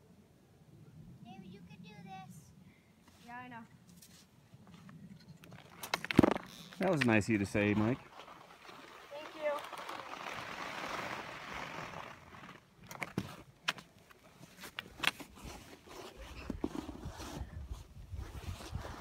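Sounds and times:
sliding over packed snow: 7.4 - 12.8
clicks and crunches in snow: 9.1 - 13.5
wind rumble on microphone: 16.2 - 19.0.

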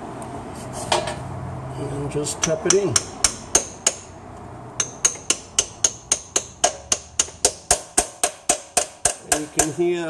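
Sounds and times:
hammer tapping metal: 2.4 - 4.1, 4.8 - 10.0.

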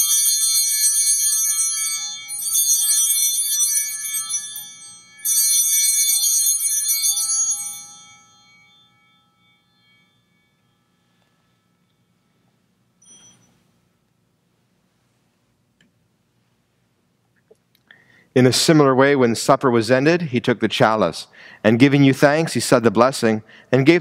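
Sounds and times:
altar bells ringing: 0.0 - 13.6.

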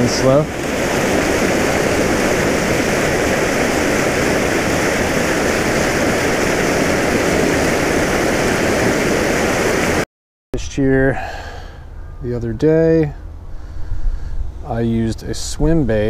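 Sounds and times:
water gushing from a pipe: 0.0 - 10.0.

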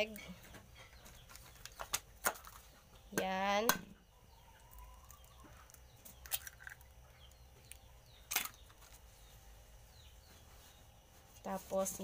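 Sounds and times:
faint bird chirps: 3.9 - 12.0
egg cracking on metal bowl: 4.6 - 8.9.

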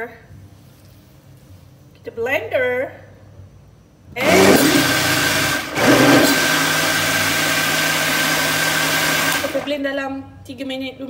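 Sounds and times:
blender motor running: 4.2 - 9.7.

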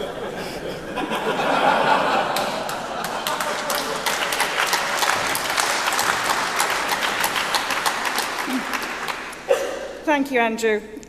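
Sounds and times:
audience laughing: 0.0 - 9.7
audience applause: 1.5 - 9.5.

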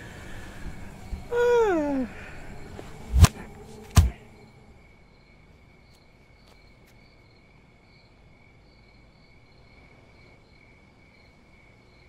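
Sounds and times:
low background rumble: 0.0 - 5.9
crickets chirping: 0.0 - 12.0.

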